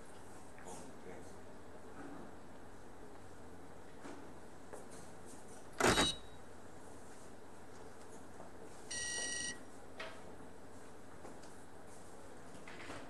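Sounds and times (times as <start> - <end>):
electronic scoreboard beep: 8.9 - 9.6.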